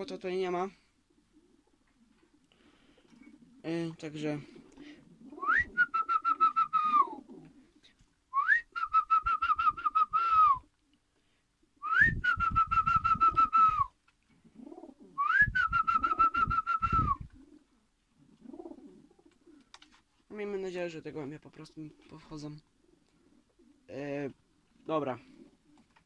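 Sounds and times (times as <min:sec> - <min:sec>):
pigeons cooing: 0:00.9 - 0:08.0, 0:13.1 - 0:19.8, 0:22.7 - 0:23.9, 0:24.5 - 0:26.0
person whistling warbling calls: 0:05.3 - 0:07.2, 0:08.4 - 0:10.7, 0:11.8 - 0:13.9, 0:15.2 - 0:17.3.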